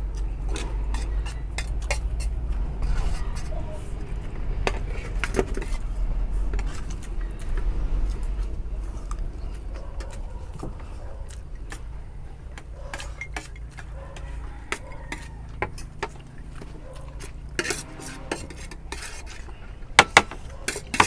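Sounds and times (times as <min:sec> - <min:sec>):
cutlery scraping plates: 0:00.2 - 0:03.8, 0:04.6 - 0:05.8, 0:12.8 - 0:21.0.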